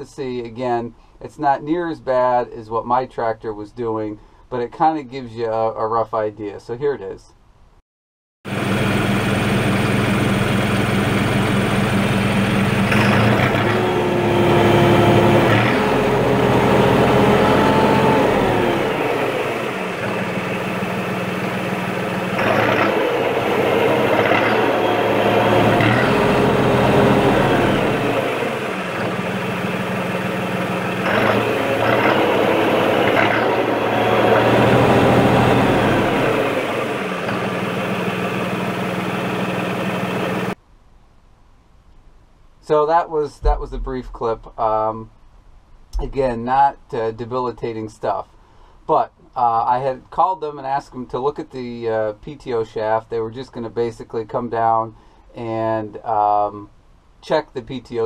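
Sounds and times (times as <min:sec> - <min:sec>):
tractor diesel engine revving: 0:08.5 - 0:40.6.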